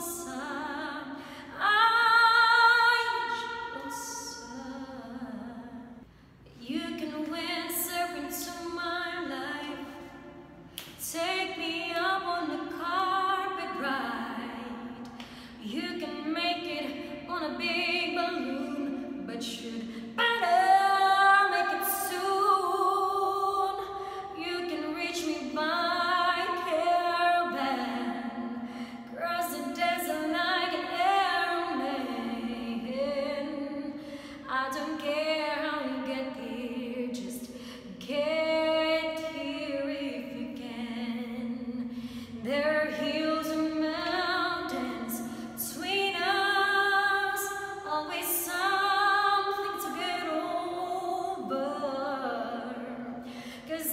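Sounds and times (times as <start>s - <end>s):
woman singing a cappella: 0.0s - 53.9s
breaths between phrases: 53.2s - 53.6s.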